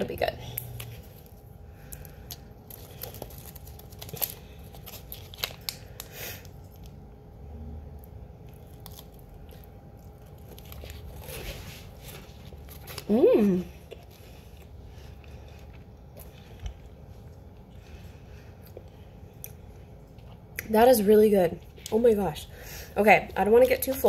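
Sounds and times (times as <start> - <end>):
plastic packet crinkling: 2.3 - 6.9
plastic tearing: 2.7 - 6.1.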